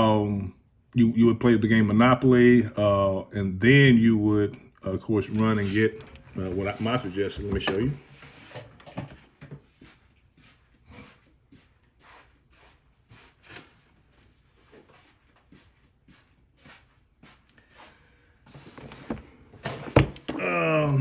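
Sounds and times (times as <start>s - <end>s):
faint knocks and rustles: 5.3s - 12.0s.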